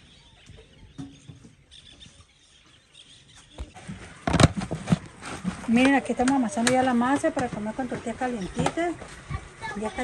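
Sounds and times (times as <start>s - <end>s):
rustling: 3.5s - 7.6s.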